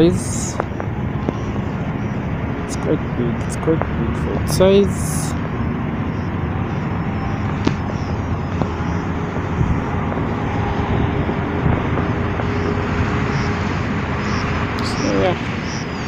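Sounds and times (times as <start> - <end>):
city traffic rumble: 0.0 - 16.0.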